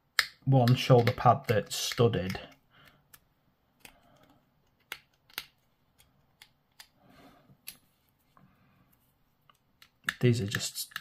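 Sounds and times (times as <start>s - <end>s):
sharp plastic clicks: 0.1s - 7.0s, 9.5s - 11.0s.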